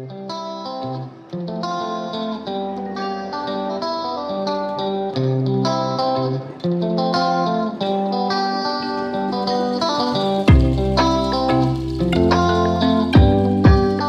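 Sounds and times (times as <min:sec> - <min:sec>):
plucked tune over bass line: 0:09.7 - 0:14.0.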